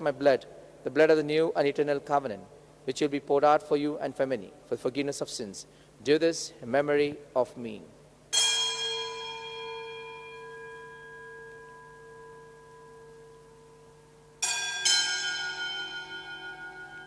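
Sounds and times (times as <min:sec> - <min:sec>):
altar bell ringing: 0:08.3 - 0:17.0.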